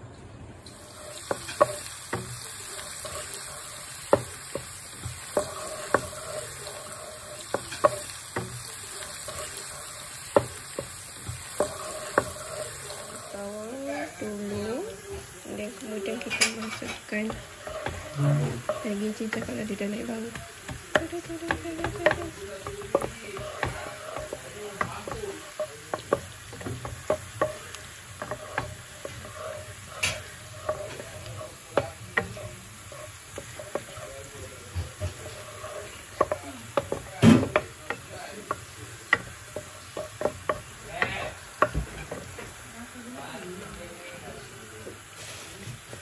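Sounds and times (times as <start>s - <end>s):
onion sizzling in oil: 0.6s - 46.0s
wooden spatula scraping pan: 0.8s - 42.6s.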